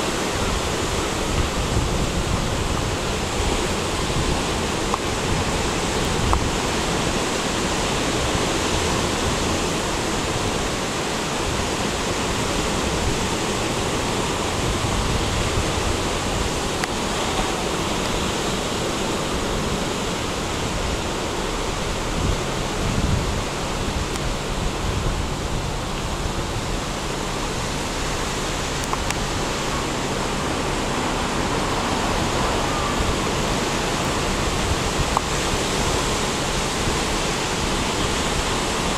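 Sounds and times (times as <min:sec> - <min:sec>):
ocean surf breaking on beach: 0:00.0 - 0:38.9.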